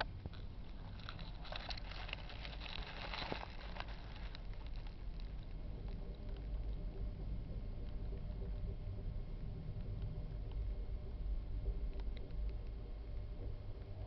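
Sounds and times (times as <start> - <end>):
soft rustling: 0.0 - 6.9
small clicks and scratches: 0.0 - 14.0
steady low hum: 0.0 - 14.0.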